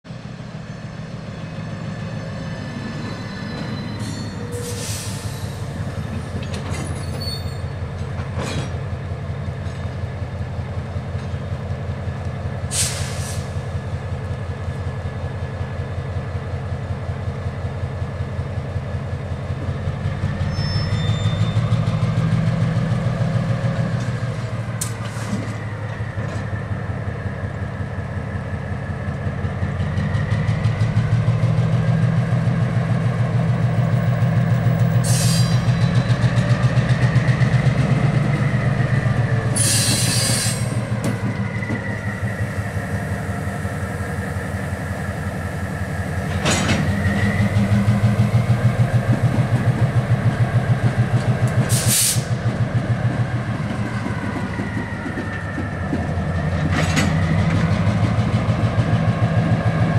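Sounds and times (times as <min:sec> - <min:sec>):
diesel locomotive engine throbbing: 0:00.1 - 0:59.9
high-pitched squeals: 0:01.5 - 0:05.6.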